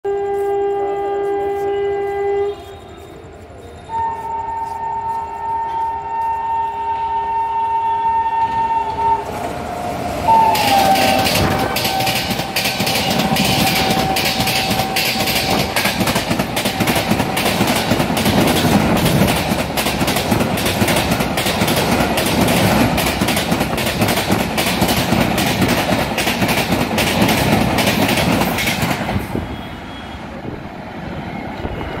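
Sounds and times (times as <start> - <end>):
train horn: 0.0 - 17.2
train wheels rushing on rail: 0.1 - 32.0
clickety-clack over rail joints: 4.2 - 30.6.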